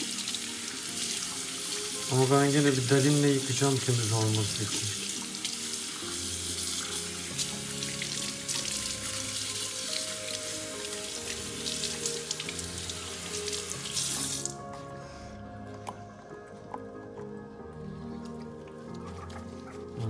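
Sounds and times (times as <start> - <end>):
tap water running into a sink: 0.0 - 14.6
water splashing over fur: 0.0 - 14.6.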